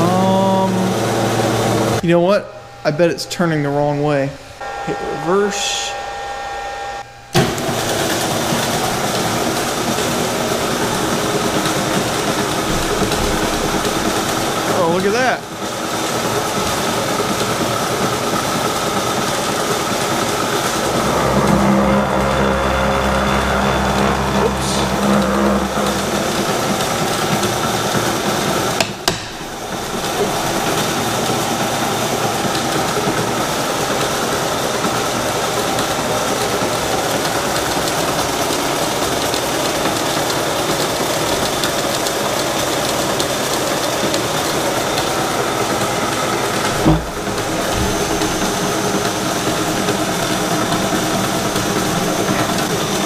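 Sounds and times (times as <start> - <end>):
milling machine motor whirring: 0.0 - 53.0.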